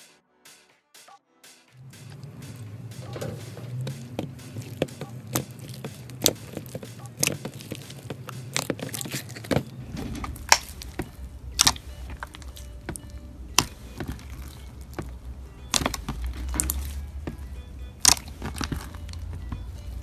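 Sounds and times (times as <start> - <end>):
slime crunchy clicks and pops: 10.3 - 17.4, 18.0 - 19.3.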